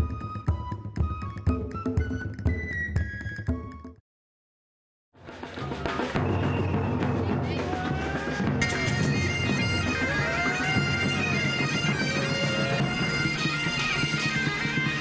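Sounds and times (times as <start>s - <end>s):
bagpipes playing: 8.6s - 15.0s.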